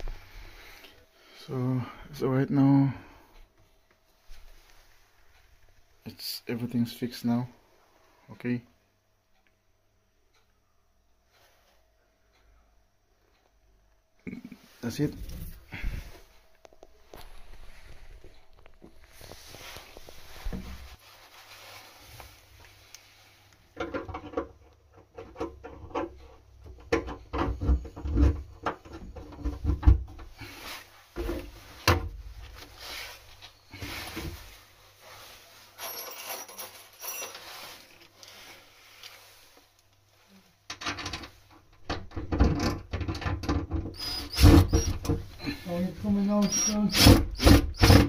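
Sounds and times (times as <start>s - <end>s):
parts knocking and clicking: 23.7s - 30.4s, 40.7s - 45.4s.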